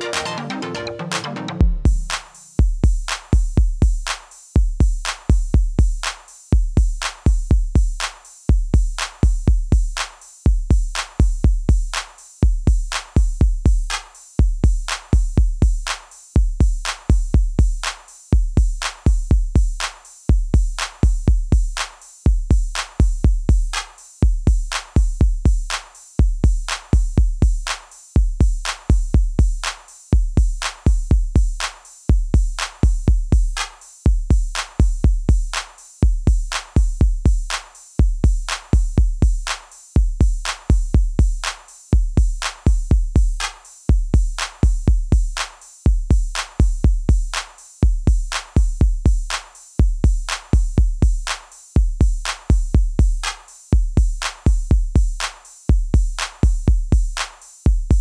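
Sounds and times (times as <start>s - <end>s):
electronic music with drum machine: 0.0s - 3.4s.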